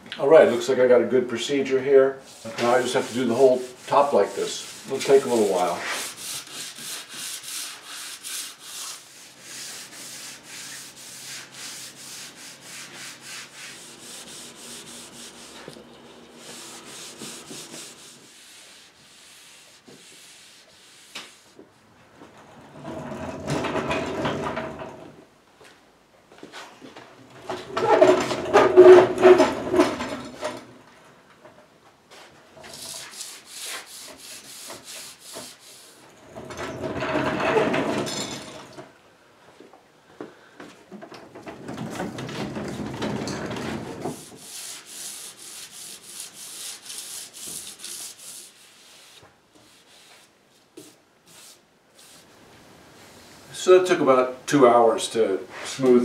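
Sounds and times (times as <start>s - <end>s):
sandpaper scratching on wood: 2.3s - 15.7s, 16.4s - 21.6s, 32.7s - 36.0s, 44.1s - 50.3s.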